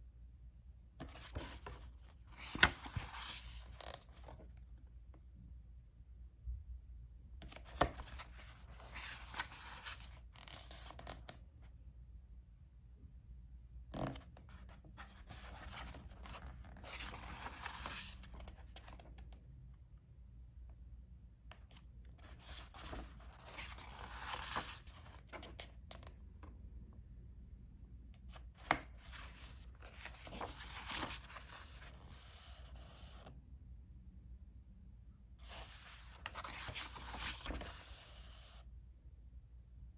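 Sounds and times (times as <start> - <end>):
book pages rustling: 1.0 - 4.5, 7.4 - 11.4, 14.0 - 19.4, 22.2 - 26.1, 28.3 - 33.2, 35.4 - 38.6.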